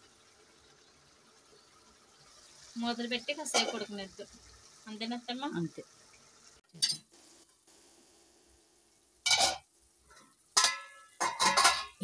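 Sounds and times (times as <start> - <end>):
steel cookware clattering: 3.5 - 3.9, 6.8 - 7.1, 9.2 - 12.0.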